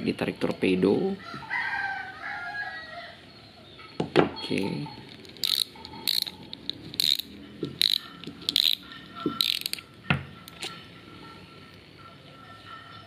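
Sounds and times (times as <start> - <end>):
fishing reel drag clicker ratcheting: 5.2 - 8.8, 9.4 - 9.8.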